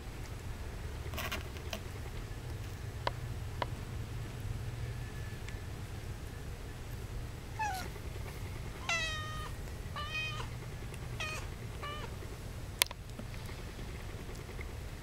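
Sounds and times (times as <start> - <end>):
low steady hum: 0.0 - 15.0
kittens mewing: 7.6 - 8.0, 8.8 - 12.2.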